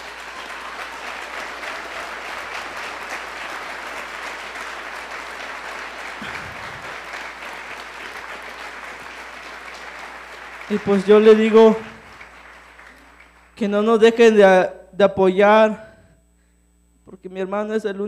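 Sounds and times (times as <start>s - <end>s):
audience applauding: 0.0s - 13.7s.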